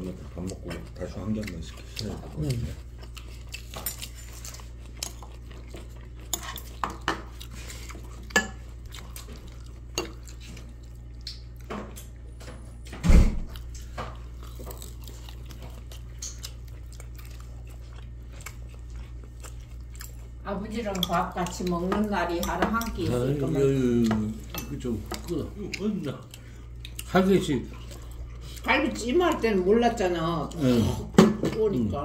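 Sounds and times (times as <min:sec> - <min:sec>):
steady low hum: 0:00.0 - 0:32.0
chopsticks clinking on dishes: 0:08.3 - 0:08.6, 0:24.0 - 0:25.4.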